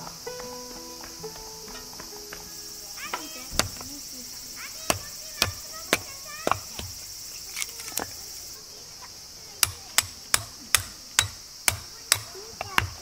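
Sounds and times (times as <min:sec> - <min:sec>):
insects chirring: 0:00.0 - 0:13.0
sharp knocks: 0:03.0 - 0:03.9, 0:04.8 - 0:07.0, 0:09.6 - 0:13.0.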